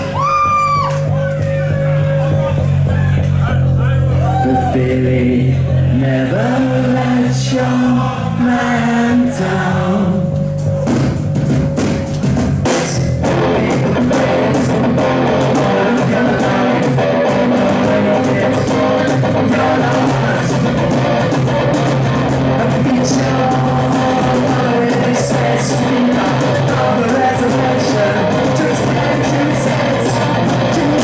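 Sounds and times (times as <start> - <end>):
drum kit: 0.0 - 4.7, 8.4 - 31.0
bass guitar: 0.0 - 31.0
electric guitar: 12.1 - 31.0.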